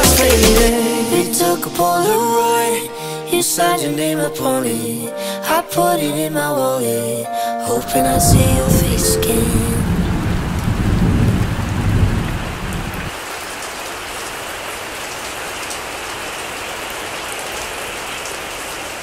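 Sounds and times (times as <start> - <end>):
thunder rumble: 8.0 - 13.1
heavy rain hissing: 8.7 - 13.5.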